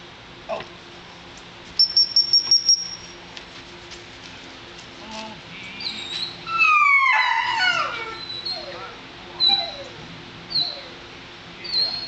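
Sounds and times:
puppy whining: 5.8s - 11.0s, 11.6s - 12.0s.

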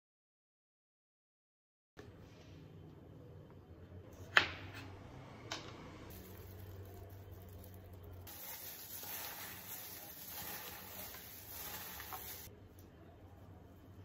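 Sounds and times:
gloved hand rustling carrots: 6.1s - 12.5s.

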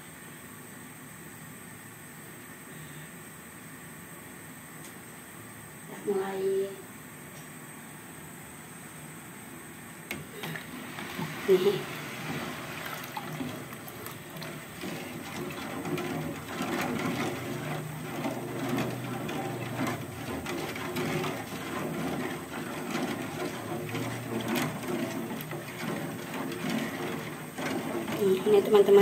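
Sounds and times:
syrup bubbling in a pan: 10.2s - 29.0s.

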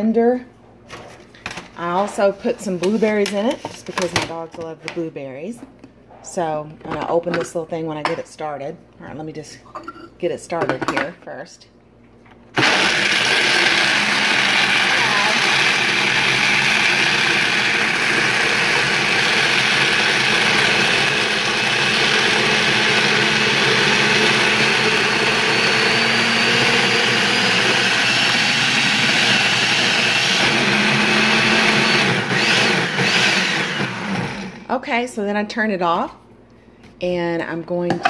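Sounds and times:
blender running: 12.6s - 34.7s.

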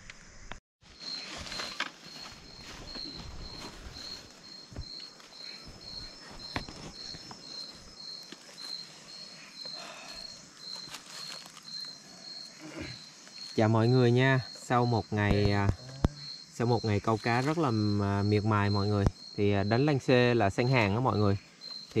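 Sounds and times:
cricket chirping: 0.0s - 22.0s.

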